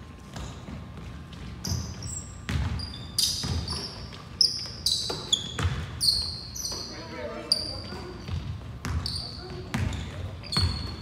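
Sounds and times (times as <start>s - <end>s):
sneakers squeaking: 0.0s - 11.0s
basketball thumping on floor: 0.3s - 2.8s.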